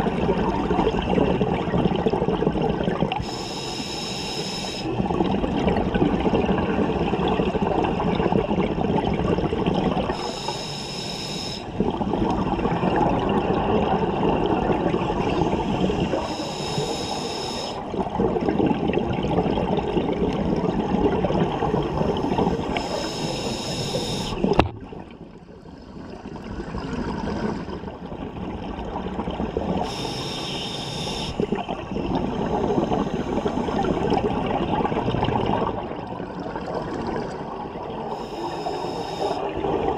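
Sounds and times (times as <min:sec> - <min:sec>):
hissing regulator inhalations: 0:03.2 - 0:04.9, 0:10.1 - 0:11.8, 0:15.2 - 0:17.9, 0:22.2 - 0:24.6, 0:29.8 - 0:31.6, 0:38.1 - 0:39.6.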